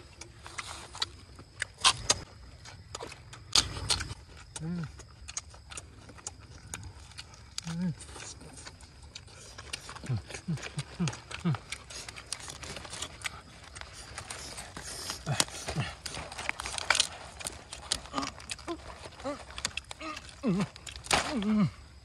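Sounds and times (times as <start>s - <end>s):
open-mouthed chewing: 0.0s - 22.0s.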